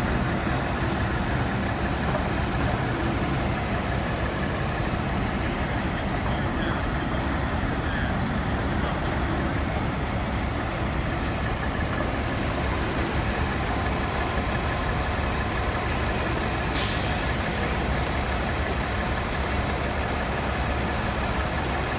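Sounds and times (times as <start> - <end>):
diesel engine idling: 0.0 - 21.9
air brakes hiss: 16.7 - 17.4.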